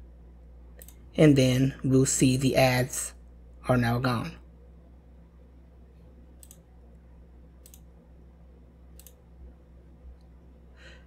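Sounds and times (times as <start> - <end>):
low steady hum: 0.0 - 11.0
computer mouse clicks: 0.8 - 1.0, 6.4 - 6.7, 7.6 - 7.9, 8.9 - 9.2.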